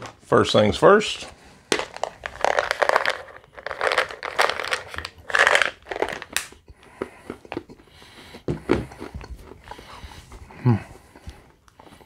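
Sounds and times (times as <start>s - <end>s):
tablets rattling in plastic bottle: 1.7s - 6.6s
tablets crunching when chewed: 1.7s - 10.2s.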